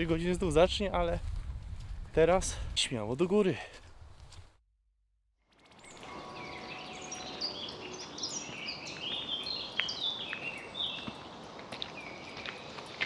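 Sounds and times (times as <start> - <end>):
birds chirping and warbling: 5.5 - 13.0
forest background hiss: 5.5 - 13.0.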